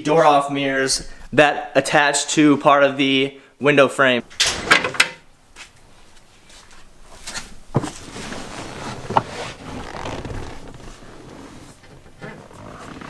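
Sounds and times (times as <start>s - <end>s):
rubbing scrape: 7.3s - 13.0s.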